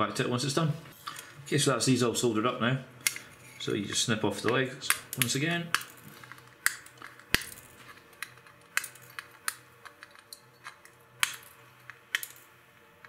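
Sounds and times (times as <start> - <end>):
side cutters snipping wire: 4.8 - 6.0.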